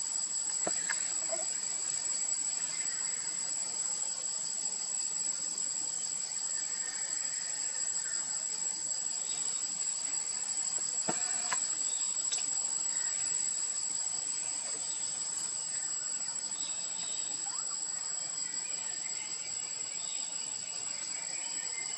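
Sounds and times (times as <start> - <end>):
insects chorus: 0.0 - 21.9.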